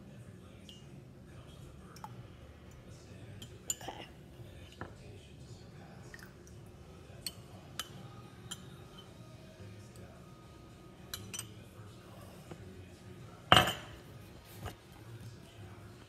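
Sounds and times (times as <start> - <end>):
metal spoon clinking on ceramic cup: 7.2 - 9.2, 11.0 - 11.7, 13.5 - 14.0.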